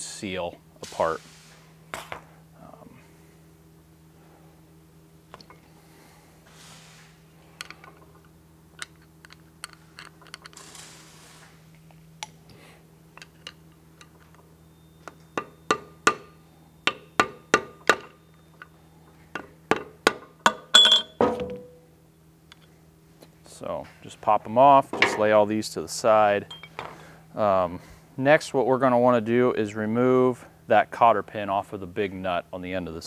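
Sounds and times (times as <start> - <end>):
tools clicking: 8.8 - 10.7.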